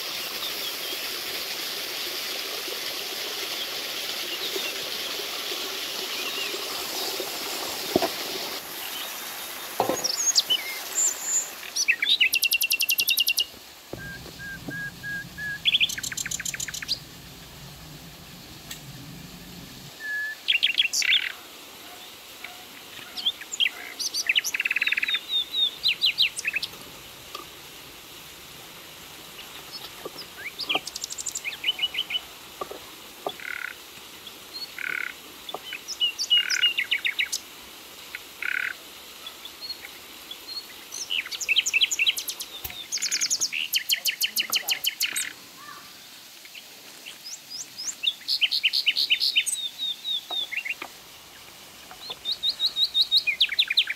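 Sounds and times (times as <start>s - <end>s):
small waterfall rushing: 0.0s - 53.9s
songbirds chirping and trilling: 8.8s - 21.4s, 46.5s - 53.9s.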